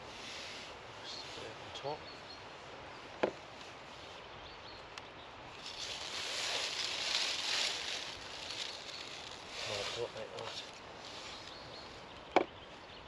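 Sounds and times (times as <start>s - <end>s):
plastic bag rustling: 5.6s - 10.8s.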